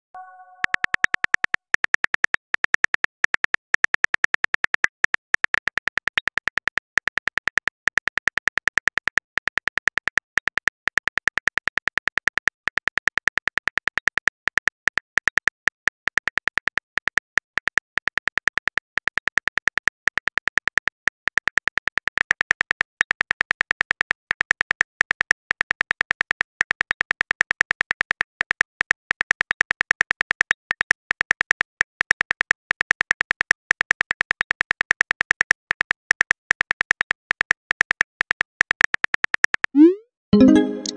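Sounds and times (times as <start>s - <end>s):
keyboard key clicks: 0.5s - 1.5s.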